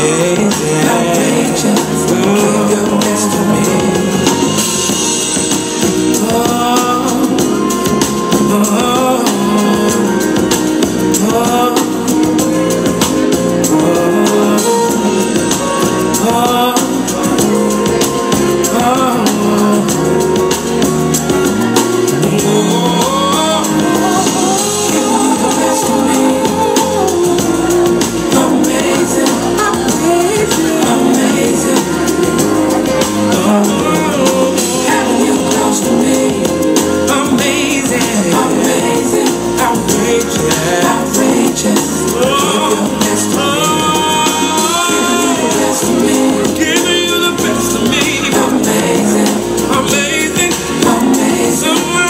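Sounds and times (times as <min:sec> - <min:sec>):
dance song with singer: 0:21.4 - 0:52.0.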